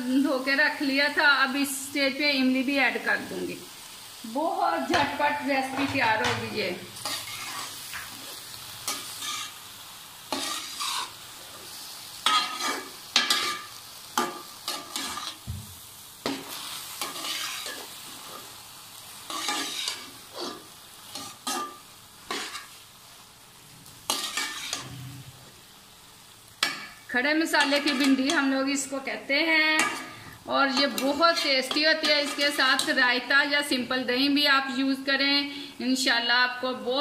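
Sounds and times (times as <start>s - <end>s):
faint sizzle of frying: 0.0s - 37.0s
metal spatula scraping pan: 4.9s - 9.6s, 10.3s - 11.2s, 12.2s - 15.4s, 16.3s - 18.5s, 19.3s - 22.8s, 24.1s - 25.4s, 27.6s - 28.5s, 29.8s - 33.0s.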